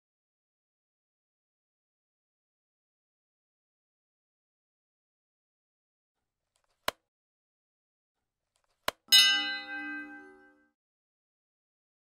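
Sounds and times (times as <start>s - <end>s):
bell dinging: 9.1s - 10.7s.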